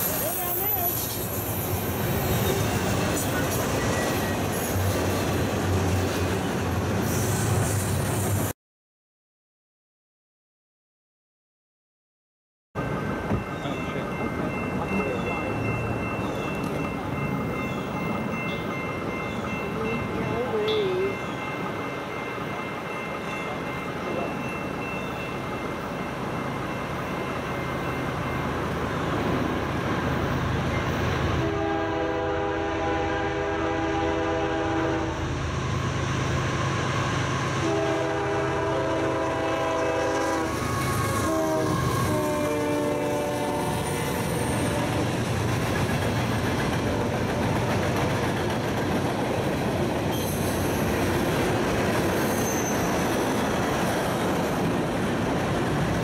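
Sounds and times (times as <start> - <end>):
train cars rolling: 0.0 - 8.5, 12.8 - 56.0
train air horn: 31.4 - 35.2, 37.6 - 45.1.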